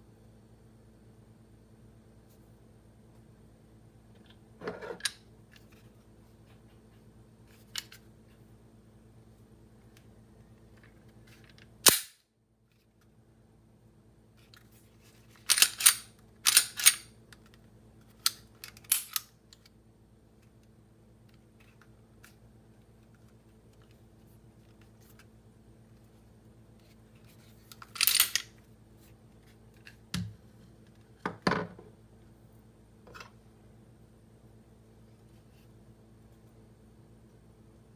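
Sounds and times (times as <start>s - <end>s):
pistol slide racking clacks: 15.5s - 17.1s.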